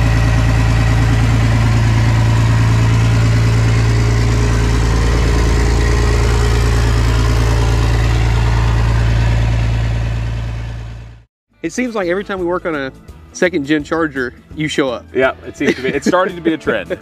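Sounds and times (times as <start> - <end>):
diesel truck engine idling: 0.0 - 11.3.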